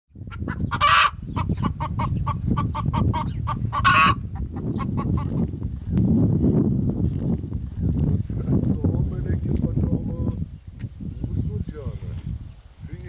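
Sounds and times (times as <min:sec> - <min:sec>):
fowl clucking: 0:00.3 - 0:05.4.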